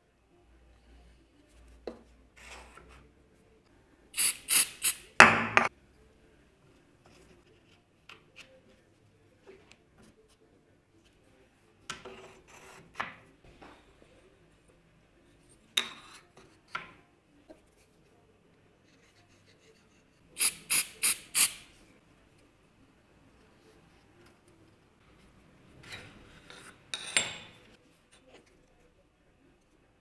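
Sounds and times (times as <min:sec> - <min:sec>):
aerosol can spraying: 0:04.2 - 0:05.0, 0:20.4 - 0:21.7.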